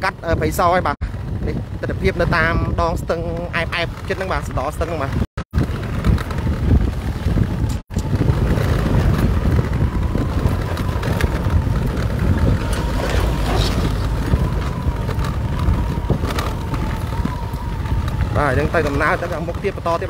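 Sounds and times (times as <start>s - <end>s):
motorbike engine rumble: 0.0s - 20.0s
wind buffeting microphone: 0.0s - 20.0s.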